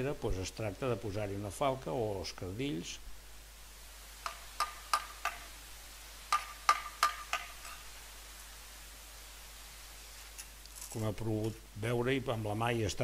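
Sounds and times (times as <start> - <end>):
trowel tapping brick: 6.3 - 7.8.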